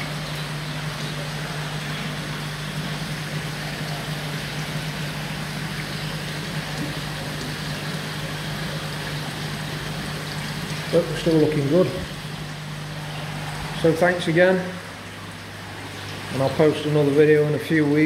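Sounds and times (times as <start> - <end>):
constant low hum: 0.0 - 18.0
water pouring and splashing: 0.0 - 18.0.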